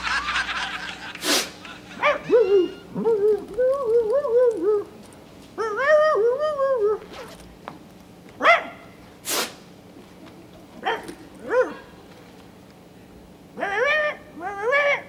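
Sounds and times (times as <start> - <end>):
person imitating dog yelps: 2.0 - 4.9, 5.6 - 7.3, 13.6 - 15.0.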